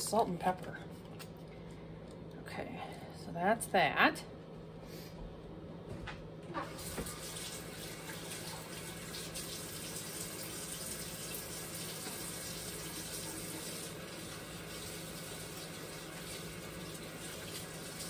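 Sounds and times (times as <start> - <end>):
tap running into sink: 6.6 - 8.7.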